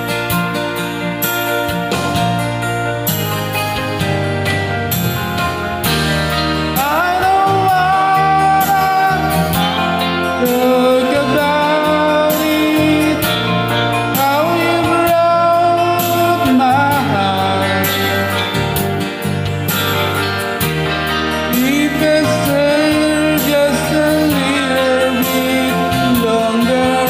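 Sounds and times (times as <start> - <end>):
guitar accompaniment: 0.0 - 27.0
man singing a slow ballad: 6.6 - 19.3, 21.4 - 27.0.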